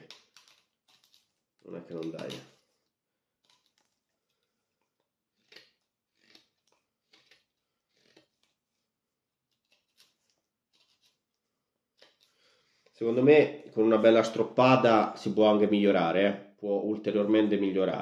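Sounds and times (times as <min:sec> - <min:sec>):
knife shaving wood: 0:03.4 - 0:12.5.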